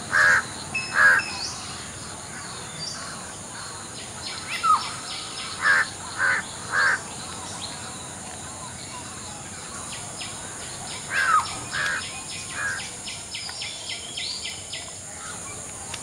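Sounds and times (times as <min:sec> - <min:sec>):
harsh caw-like bird calls: 0:00.1 - 0:01.3, 0:05.4 - 0:07.1, 0:11.1 - 0:12.9.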